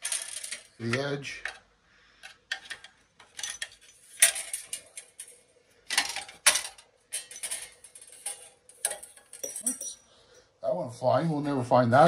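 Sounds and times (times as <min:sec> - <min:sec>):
screwdriver clinking and scraping metal: 0:02.2 - 0:10.0.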